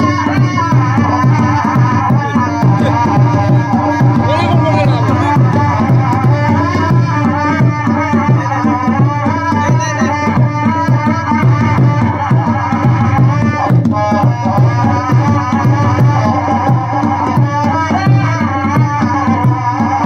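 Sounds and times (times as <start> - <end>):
kettle drums beaten steadily: 0.0 - 20.0
wavering high melody: 2.2 - 8.8
steady low drone: 2.2 - 9.0.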